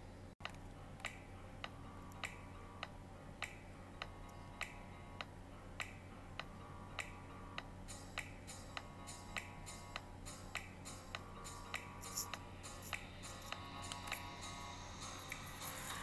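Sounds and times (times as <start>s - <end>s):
low steady hum: 0.0s - 16.0s
soft ticking music: 0.4s - 16.0s.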